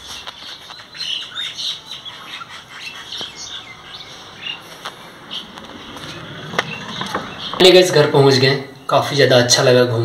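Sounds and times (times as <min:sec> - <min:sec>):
small birds chirping: 0:00.0 - 0:09.7.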